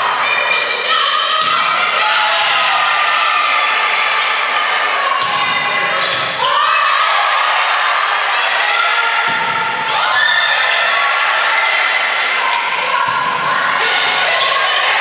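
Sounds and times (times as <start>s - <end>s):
voices calling out: 0.0s - 15.0s
volleyball being hit: 9.2s - 9.8s.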